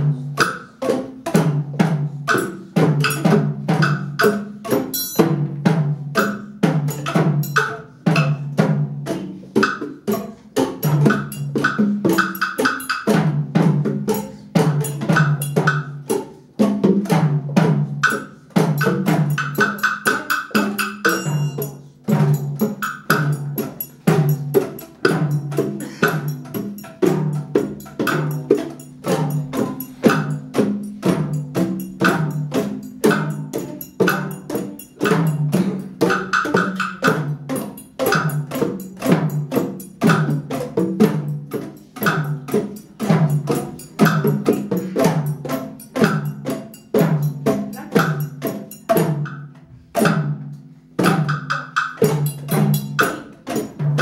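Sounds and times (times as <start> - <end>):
drums: 0.0 - 54.0
mallet instruments: 0.0 - 54.0.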